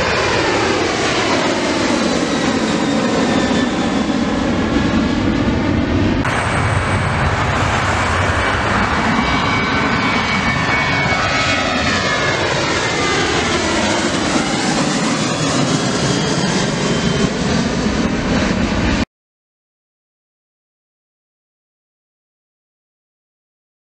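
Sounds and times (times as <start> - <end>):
jet engines roaring at takeoff: 0.0 - 19.1.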